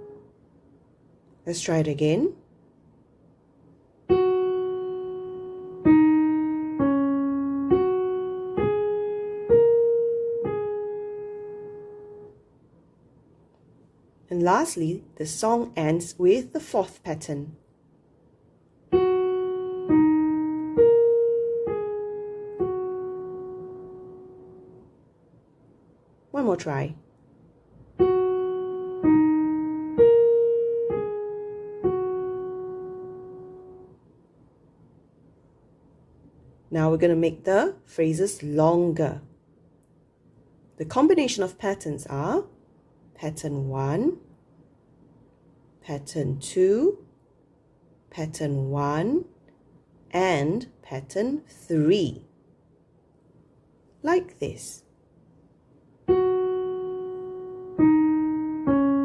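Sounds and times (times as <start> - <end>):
piano single notes: 4.1 - 12.4, 18.9 - 24.9, 27.9 - 34.0, 56.1 - 59.0.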